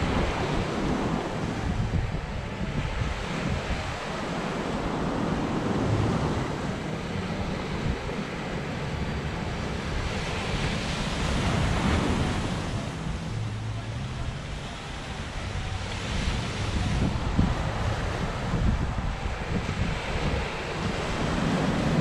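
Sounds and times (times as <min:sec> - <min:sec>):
surf breaking on shore: 0:00.0 - 0:22.0
wind buffeting microphone: 0:00.0 - 0:22.0.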